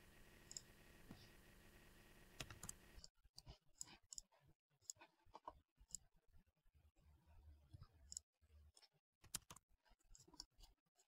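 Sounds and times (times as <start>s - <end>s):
computer mouse clicks: 0.4s - 0.7s, 2.4s - 5.1s, 8.1s - 10.8s.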